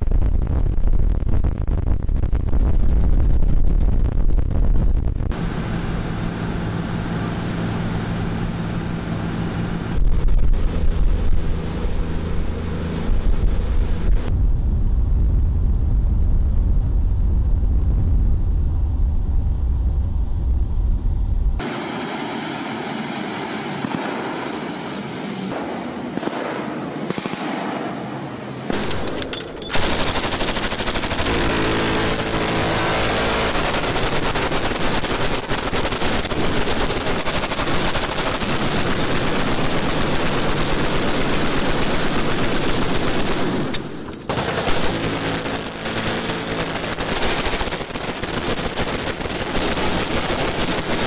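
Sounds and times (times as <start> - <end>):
boat engines droning: 5.4 - 14.1, 21.6 - 35.4
rushing water and wind: 21.6 - 26.1.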